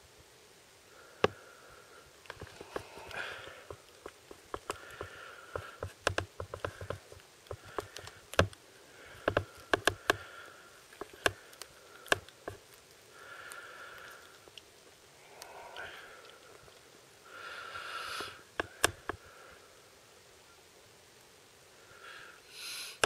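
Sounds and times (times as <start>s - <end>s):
soft snuffling breaths: 0.9s - 19.8s, 21.7s - 23.0s
kittens suckling wet clicks: 2.2s - 16.9s, 18.2s - 19.2s.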